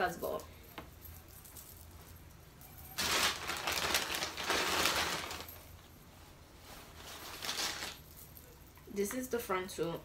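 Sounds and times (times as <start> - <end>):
plastic bag rustling: 2.7 - 8.4.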